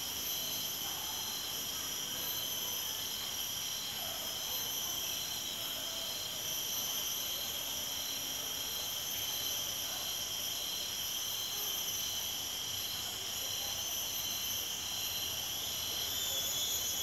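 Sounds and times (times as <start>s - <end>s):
insect trills and drones: 0.0s - 17.0s
pulsing insect call: 0.0s - 17.0s.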